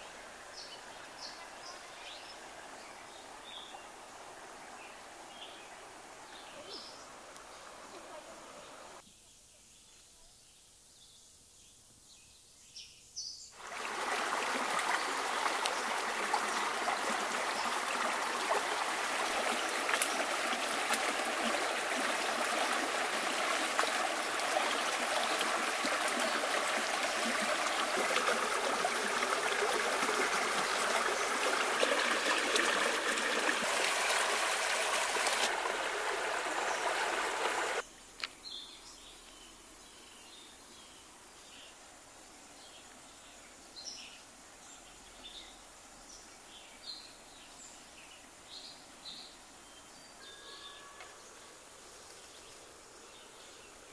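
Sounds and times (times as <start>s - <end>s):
river water rushing: 13.6s - 37.8s.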